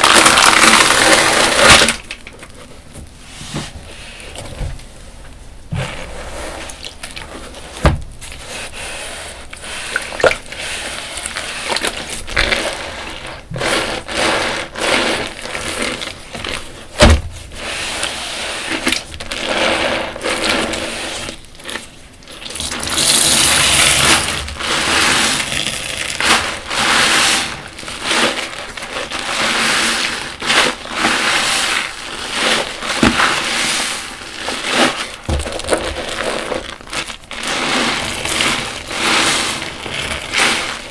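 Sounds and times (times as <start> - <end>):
wet sponges squelching: 0.0 - 40.9.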